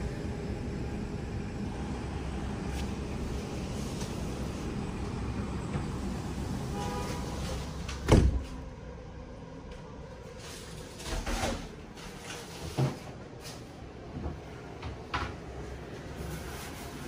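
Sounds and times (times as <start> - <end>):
steady outside hum: 0.0 - 17.0
sliding glass door thump: 8.0 - 8.6.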